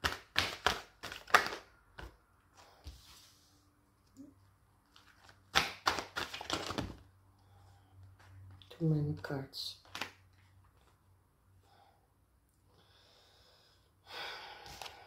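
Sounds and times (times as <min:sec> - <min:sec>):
cards being shuffled: 0:00.0 - 0:02.2, 0:04.9 - 0:07.0, 0:09.8 - 0:11.0.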